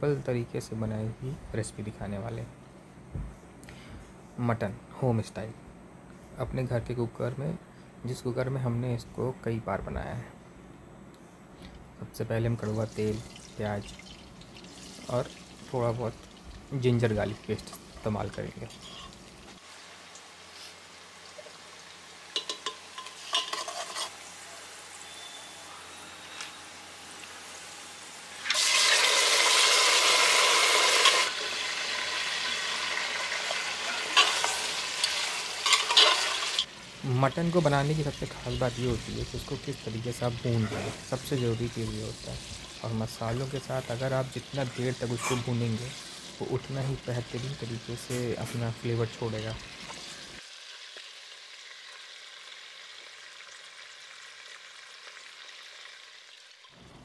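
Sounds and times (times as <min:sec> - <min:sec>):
meat sizzling in hot oil: 0:12.8 - 0:25.4, 0:26.6 - 0:56.7
metal ladle clinking pot: 0:22.4 - 0:24.1, 0:34.1 - 0:36.7.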